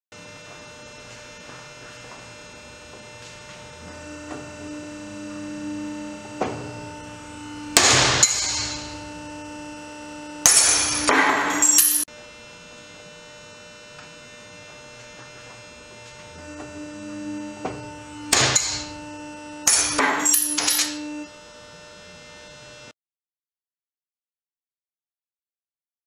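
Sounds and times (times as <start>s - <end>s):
steady machine hum: 0.2s - 22.9s
metal pieces clattering: 10.5s - 12.0s, 19.7s - 21.0s.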